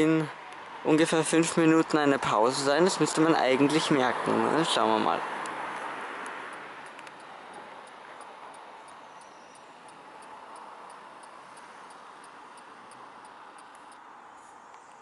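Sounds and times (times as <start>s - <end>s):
street ambience hush: 0.0s - 15.0s
light regular ticking: 5.4s - 14.0s.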